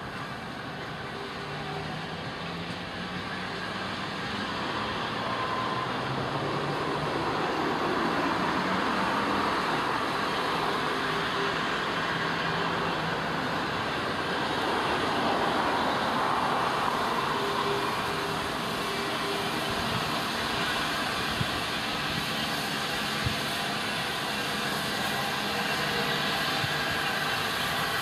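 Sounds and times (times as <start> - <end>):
steam locomotive hiss and rumble: 0.0 - 28.0.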